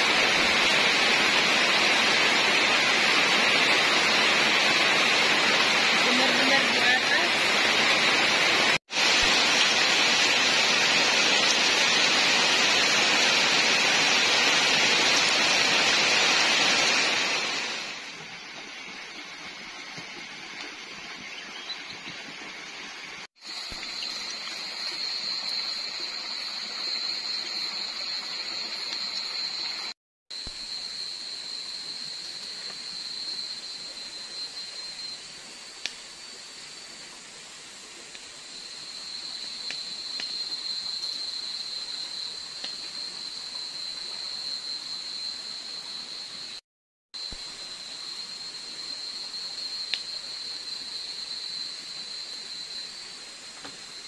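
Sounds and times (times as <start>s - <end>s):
heavy rain on foliage: 0.0s - 46.6s
night insects droning: 0.0s - 46.6s, 47.2s - 54.0s
campfire crackling: 37.7s - 41.8s, 49.9s - 50.1s.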